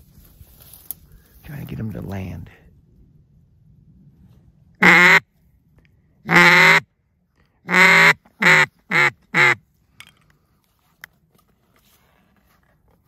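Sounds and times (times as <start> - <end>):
duck call quacks: 4.8 - 5.2, 6.3 - 6.8, 7.7 - 9.6.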